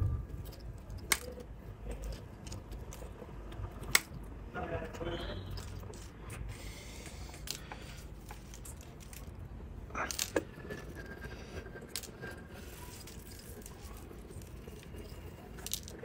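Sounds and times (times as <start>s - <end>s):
metal wire clicking and rattling: 0.0s - 4.5s, 5.4s - 16.0s
wire cutters snipping: 2.0s - 4.2s.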